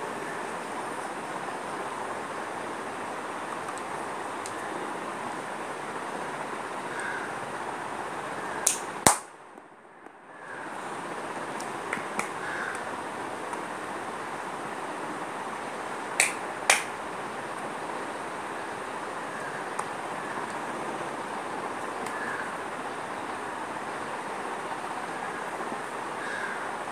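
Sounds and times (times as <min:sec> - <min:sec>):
steady background hiss: 0:00.0 - 0:26.9
sharp clicks: 0:08.6 - 0:09.3, 0:16.2 - 0:16.9.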